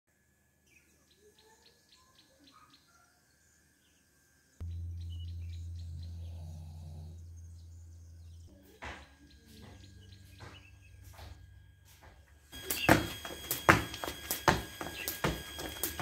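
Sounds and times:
small birds chirping: 0:00.6 - 0:11.8, 0:12.5 - 0:16.0
loud steady low hum: 0:04.6 - 0:16.0.

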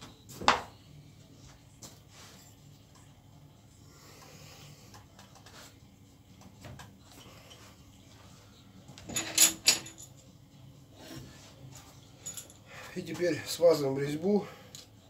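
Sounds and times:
small metal parts clattering: 0:09.0 - 0:10.2, 0:12.2 - 0:12.7.

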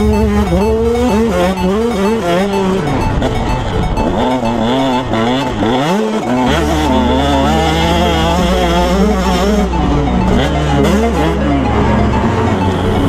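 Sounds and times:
music: 0:00.0 - 0:13.0
steady bass note: 0:00.0 - 0:13.0
motocross bike engine revving: 0:04.0 - 0:13.0.

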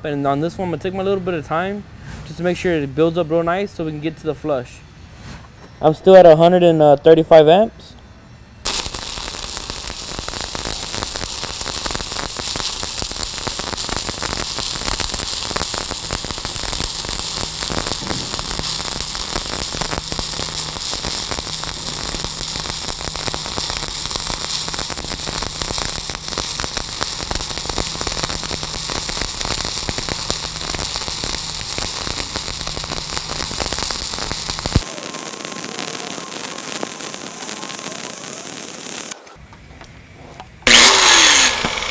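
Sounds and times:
stick welding arc crackling: 0:08.7 - 0:39.2, 0:40.6 - 0:41.9.

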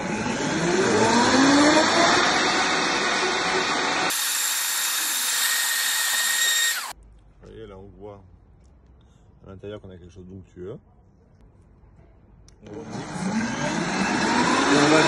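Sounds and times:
blender motor whining: 0:00.0 - 0:07.0, 0:12.7 - 0:15.0.

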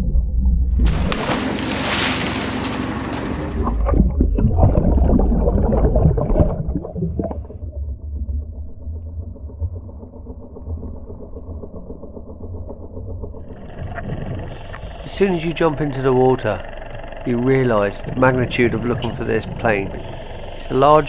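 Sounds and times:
boat engine drone underwater: 0:00.0 - 0:21.0
underwater bubbles rushing: 0:00.0 - 0:21.0
sea water splashing: 0:00.8 - 0:21.0.

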